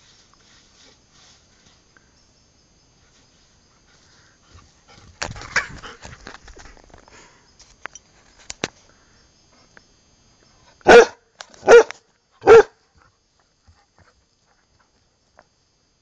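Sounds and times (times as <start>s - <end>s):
dog barking: 10.8s - 12.8s.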